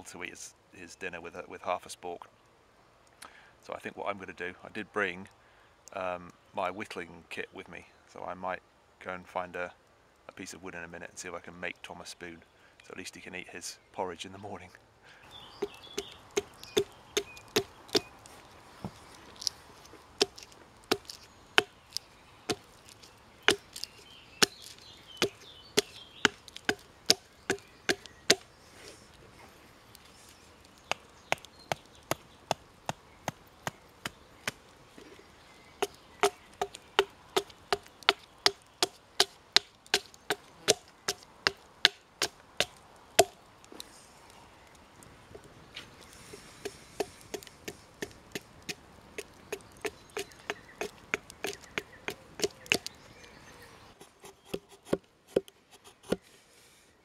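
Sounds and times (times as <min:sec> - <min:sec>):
hatchet chopping wood: 0:15.6 - 0:18.1, 0:20.2 - 0:21.8, 0:22.5 - 0:28.5, 0:30.8 - 0:34.6, 0:35.8 - 0:43.4, 0:46.6 - 0:52.9, 0:54.0 - 0:56.2.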